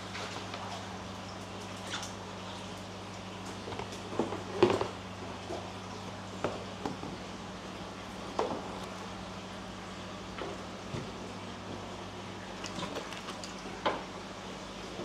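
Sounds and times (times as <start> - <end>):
steady low hum: 0.0 - 15.0
water splashes and knocks: 12.6 - 14.1.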